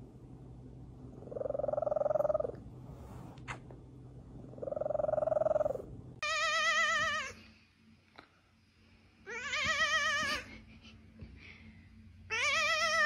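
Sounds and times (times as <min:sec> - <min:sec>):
cat purring: 0:00.2 - 0:06.2
cat yowling with vibrato: 0:12.3 - 0:13.0.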